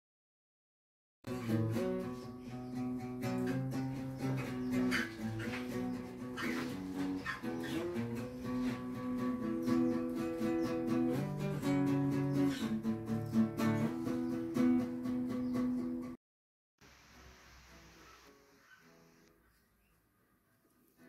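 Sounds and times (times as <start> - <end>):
guitar plucked notes and chords: 1.3 - 16.2.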